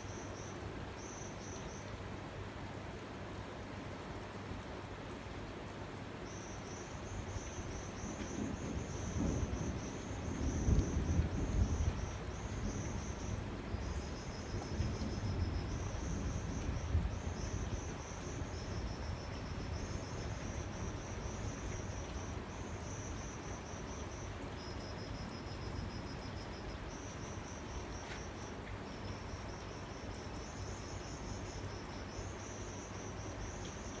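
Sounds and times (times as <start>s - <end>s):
crickets chirping: 0.0s - 2.2s, 6.0s - 34.0s
distant thunder rumble: 7.7s - 21.4s.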